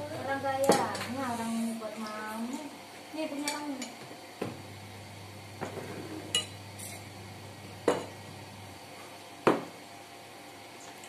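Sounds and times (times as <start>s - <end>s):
spoons clinking on ceramic plates: 6.2s - 7.1s.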